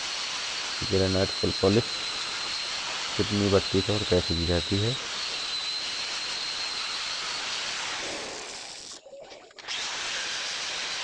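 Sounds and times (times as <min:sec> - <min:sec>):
angle grinder whining on stone: 0:00.0 - 0:09.0, 0:09.6 - 0:11.0.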